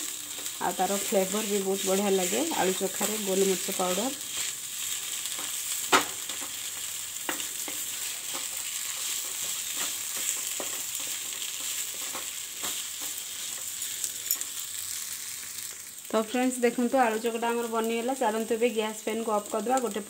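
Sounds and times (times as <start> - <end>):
food sizzling in frying pan: 0.0 - 20.0
spatula scraping pan: 0.2 - 14.5.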